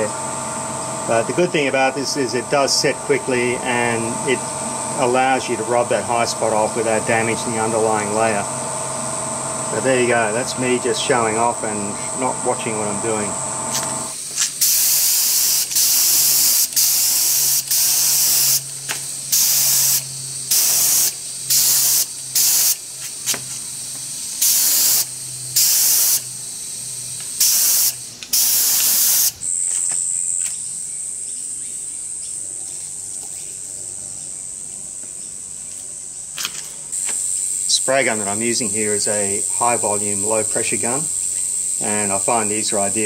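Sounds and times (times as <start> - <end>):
spray gun hissing bursts: 0.0 - 29.4.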